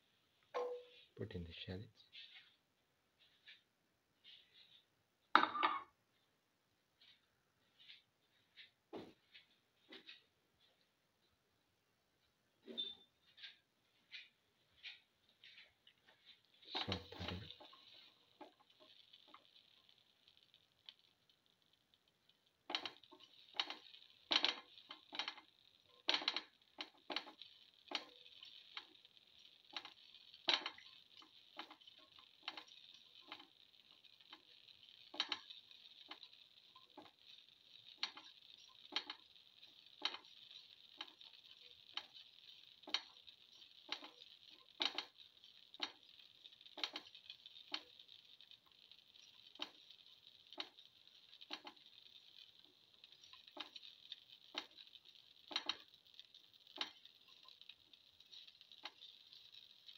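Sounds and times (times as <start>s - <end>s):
shallots sizzling in oil: 14.0s - 59.9s
spitting oil pops: 14.2s - 59.9s.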